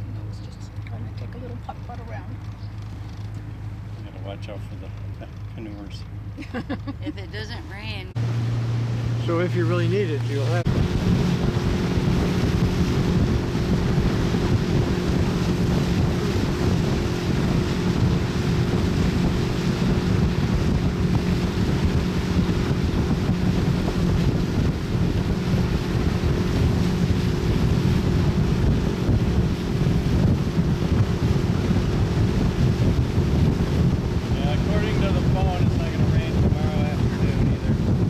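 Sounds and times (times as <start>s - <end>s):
boat motor hum: 0.0s - 38.0s
water washing past hull: 7.4s - 38.0s
wind buffeting microphone: 7.8s - 38.0s.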